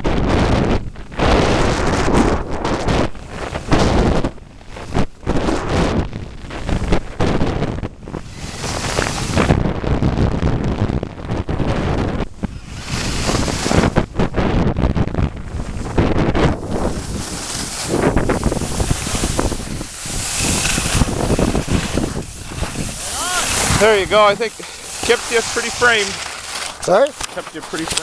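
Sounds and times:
wind buffeting microphone: 0:00.0 - 0:28.0
skis scraping on snow: 0:02.7 - 0:05.8, 0:08.1 - 0:09.6, 0:11.8 - 0:14.5, 0:15.4 - 0:28.0.

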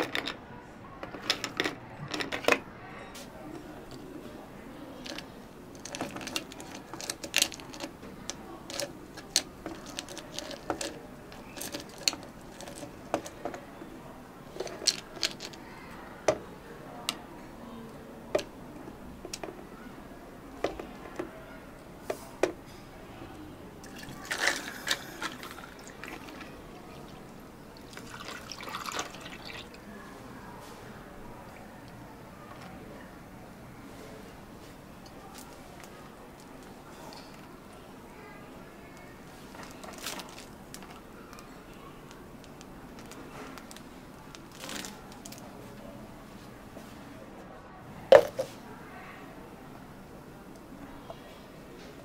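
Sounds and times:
cups and utensils clinking: 0:00.0 - 0:00.4, 0:05.0 - 0:13.7, 0:23.8 - 0:27.2, 0:27.8 - 0:29.8, 0:48.1 - 0:48.6
liquid pouring: 0:23.8 - 0:29.8.

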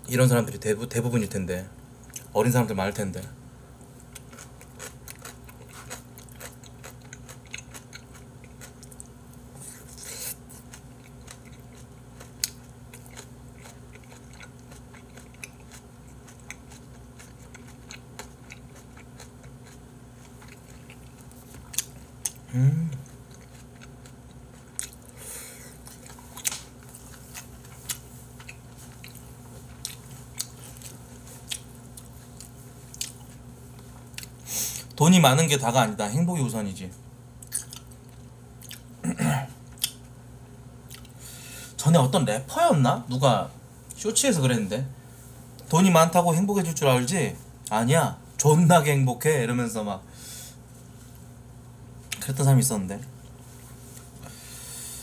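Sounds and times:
steady low hum: 0:00.0 - 0:55.0
person chewing food: 0:04.0 - 0:35.0, 0:37.4 - 0:39.0, 0:39.6 - 0:40.2, 0:40.8 - 0:41.3.

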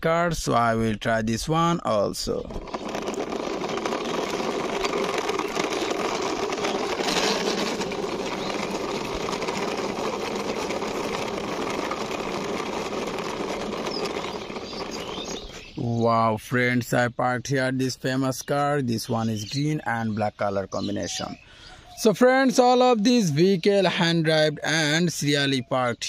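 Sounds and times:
plastic toy car wheels rattling: 0:02.0 - 0:15.8.

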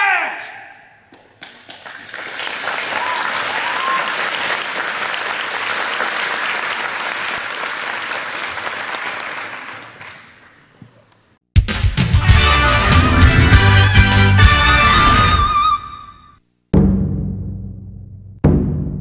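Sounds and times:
audience applauding: 0:01.1 - 0:10.8
short cheers: 0:02.8 - 0:04.4.

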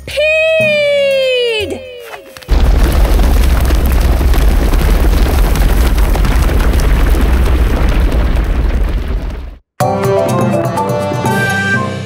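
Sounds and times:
deep low rumble: 0:02.5 - 0:09.6.

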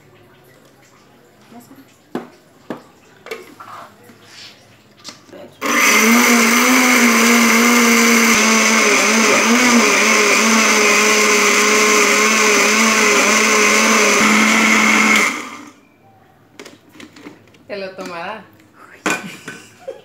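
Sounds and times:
electric blender running: 0:05.6 - 0:15.8.

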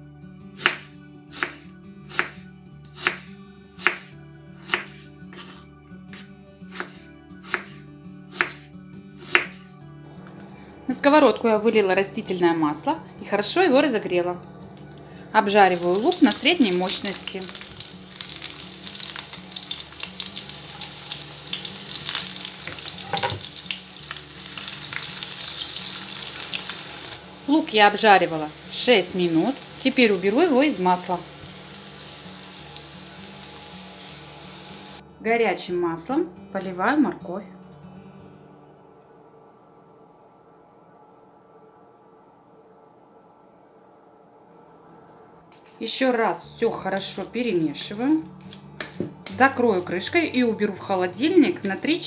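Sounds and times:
knife slicing onion: 0:00.6 - 0:09.7
onion sizzling in oil: 0:15.4 - 0:35.0
knife knocking on wooden board: 0:23.0 - 0:23.4.

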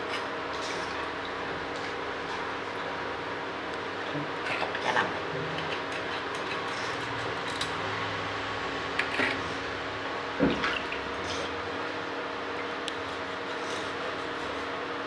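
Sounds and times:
steady background hum: 0:00.0 - 0:15.0
knife scraping fish: 0:04.5 - 0:07.8, 0:13.0 - 0:14.8.

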